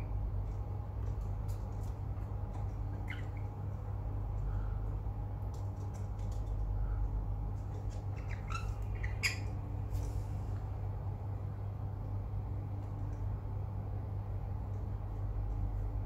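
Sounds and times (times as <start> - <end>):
steady low hum: 0.0 - 16.0
parrots squawking and chirping: 2.9 - 3.6, 8.0 - 9.6.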